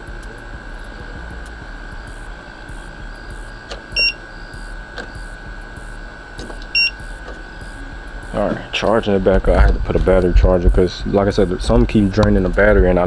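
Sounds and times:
high-pitched electrical whine: 0:00.0 - 0:13.0
low hum: 0:00.0 - 0:13.0
short electronic beeps: 0:02.7 - 0:05.3, 0:06.7 - 0:08.4.

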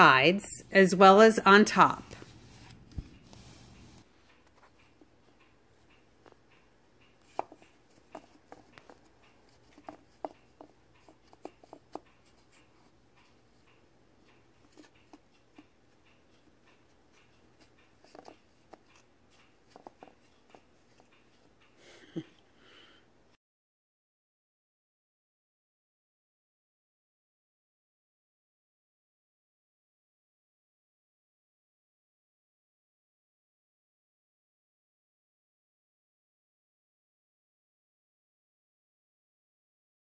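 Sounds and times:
cat pawing at foam balls: 0:07.2 - 0:13.6, 0:17.1 - 0:21.5.

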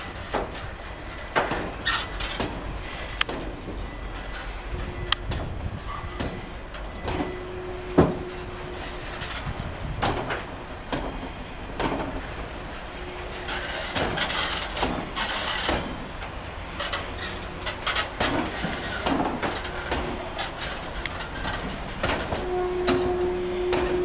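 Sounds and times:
freight train rumbling: 0:00.0 - 0:24.0
thin high squeal: 0:07.0 - 0:10.4, 0:11.1 - 0:18.0, 0:22.3 - 0:24.0.

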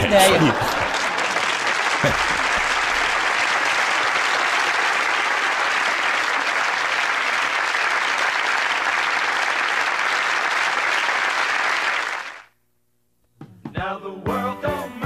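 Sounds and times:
studio audience applauding: 0:00.0 - 0:12.5.

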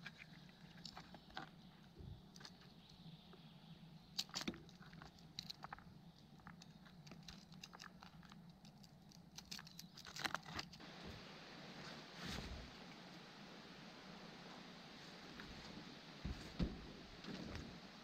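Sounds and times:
background hiss: 0:10.7 - 0:18.0.

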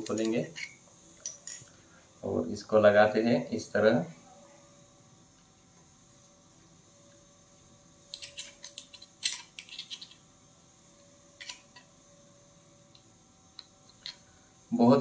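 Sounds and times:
plastic parts clicking and rattling: 0:08.1 - 0:10.2.

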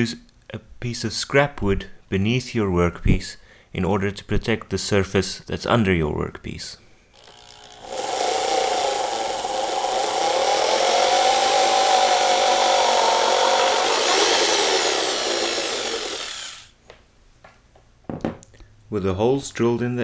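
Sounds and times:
electric drill whining: 0:07.2 - 0:16.8.

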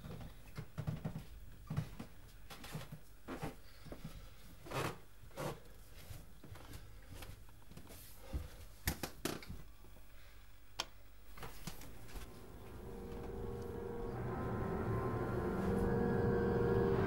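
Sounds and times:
footsteps on carpeted stairs: 0:00.0 - 0:04.3, 0:05.9 - 0:08.7, 0:11.4 - 0:14.0
faint room hiss: 0:00.0 - 0:17.0.

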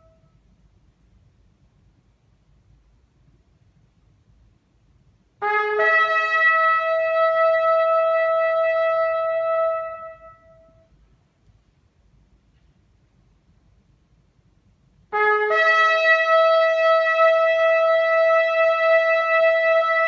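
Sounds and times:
shofar blast: 0:00.0 - 0:00.4, 0:05.4 - 0:11.0, 0:15.1 - 0:20.0.

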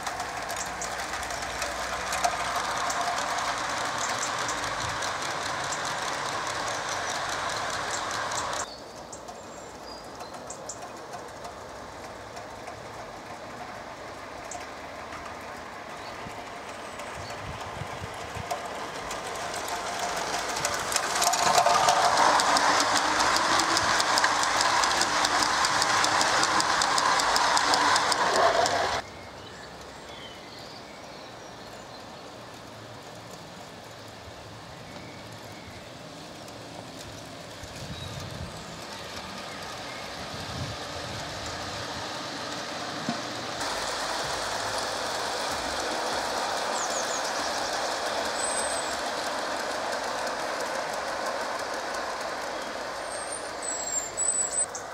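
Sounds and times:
model train wheels clicking on track: 0:00.0 - 0:54.9.

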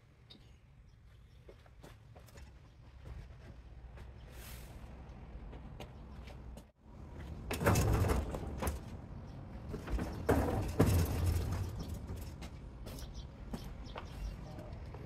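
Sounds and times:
casters rumbling on concrete: 0:07.3 - 0:12.9
tool chest knocking and rattling: 0:09.7 - 0:12.6.

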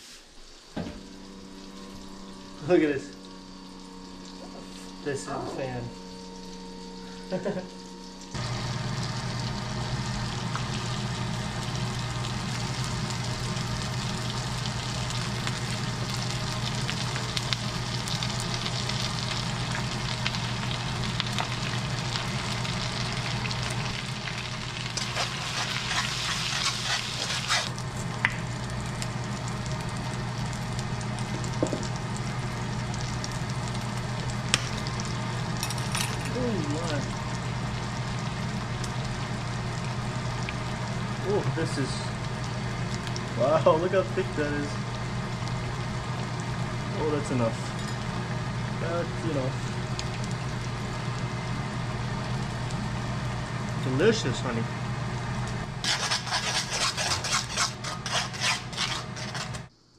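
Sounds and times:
fan humming: 0:00.0 - 0:59.9
food sizzling in a wok: 0:00.0 - 0:59.9.

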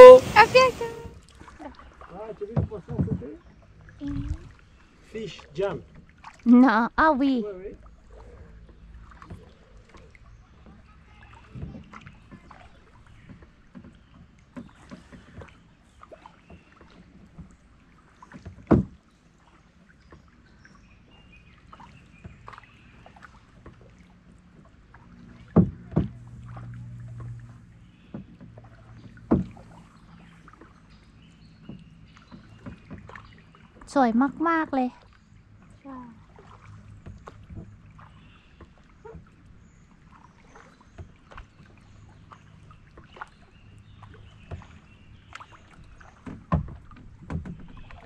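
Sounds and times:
paddle splashes and drips: 0:00.0 - 0:06.7, 0:07.3 - 0:48.0
sharp knocks: 0:29.0 - 0:29.6.

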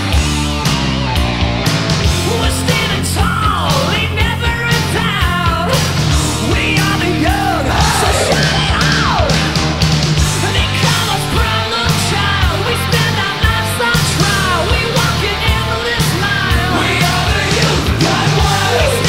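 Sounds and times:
punk rock music: 0:00.0 - 0:19.0
person yelling vocals: 0:07.5 - 0:09.0.

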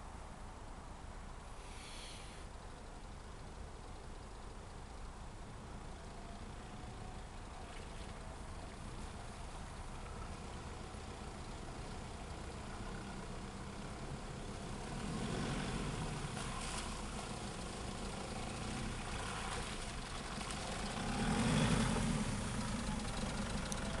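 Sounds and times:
engine running at low revs: 0:02.6 - 0:24.0
tyres through mud and water: 0:05.8 - 0:24.0.

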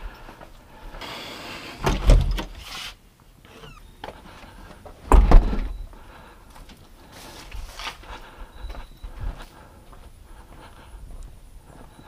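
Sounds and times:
door thumping shut: 0:01.8 - 0:02.5, 0:05.1 - 0:05.8.

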